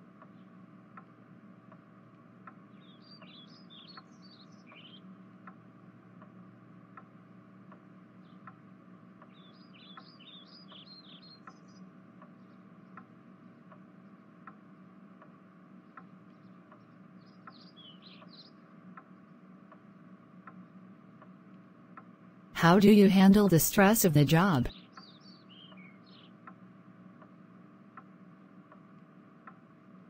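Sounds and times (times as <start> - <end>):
faint steady ticking: 0.0 - 24.6, 26.3 - 30.0
small bird chirping: 9.3 - 11.8.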